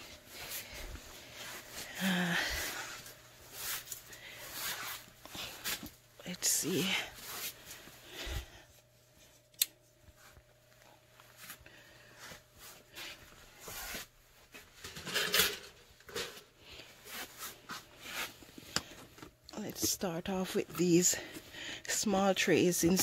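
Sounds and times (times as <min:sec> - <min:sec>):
low steady hum: 0:00.0 - 0:23.0
rustling and handling noises: 0:00.0 - 0:23.0.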